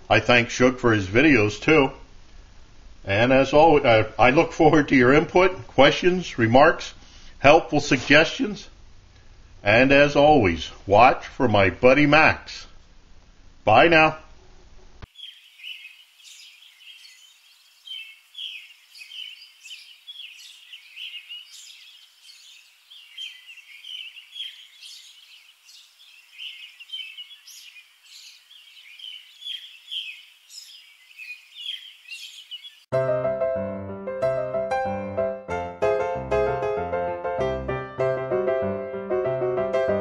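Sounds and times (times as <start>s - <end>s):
birds chirping: 15.1s - 32.9s
piano music: 32.9s - 40.0s.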